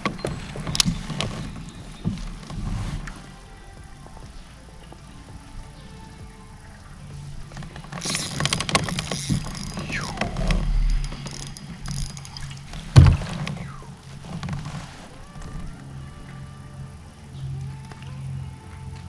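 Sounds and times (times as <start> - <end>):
fishing reel clicks and rattles: 0.0 - 2.7, 7.5 - 14.8.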